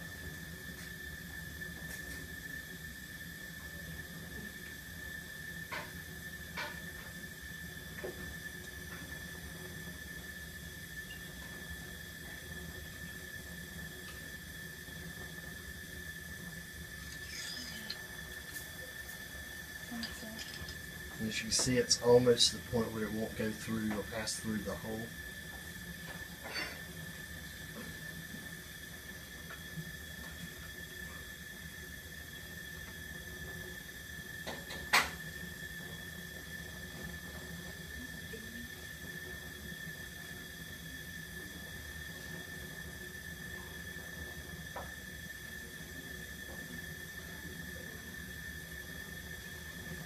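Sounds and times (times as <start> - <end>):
bunsen burner flame hissing: 0.0 - 50.0
faint high whine: 0.0 - 50.0
high whine: 16.3 - 31.2.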